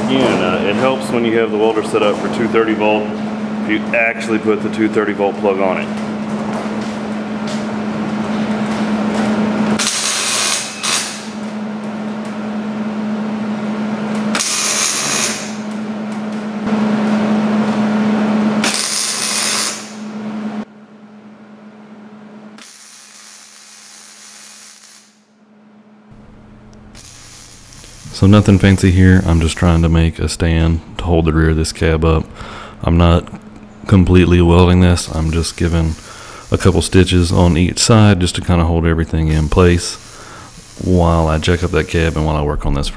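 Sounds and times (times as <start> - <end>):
welder crackling buzz: 6.3 - 11.6, 14.1 - 20.3, 22.6 - 25.4, 26.1 - 30.7, 34.1 - 42.8
welder hissing: 9.8 - 11.4, 14.3 - 15.7, 18.6 - 20.1, 22.6 - 25.2, 26.9 - 30.6, 34.8 - 42.5.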